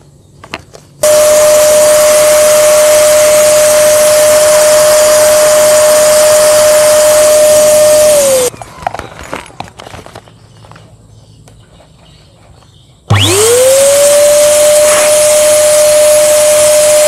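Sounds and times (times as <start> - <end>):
electric balloon pump whine: 1.0 - 8.5, 13.1 - 17.0.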